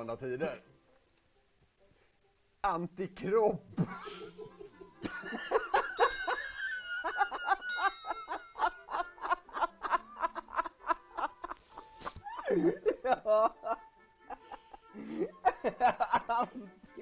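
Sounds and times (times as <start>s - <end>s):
man laughing hard: 3.8s - 16.7s.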